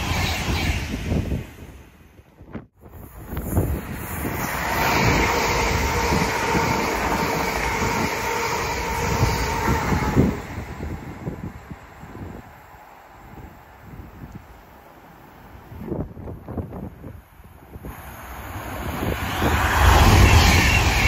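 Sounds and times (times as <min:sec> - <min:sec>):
train wheels rumbling on rail: 0:00.0 - 0:21.0
train whine: 0:02.8 - 0:15.9, 0:17.5 - 0:21.0.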